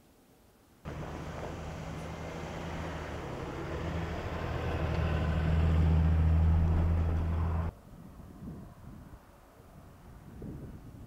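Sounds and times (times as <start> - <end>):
truck engine humming: 0.9 - 7.7.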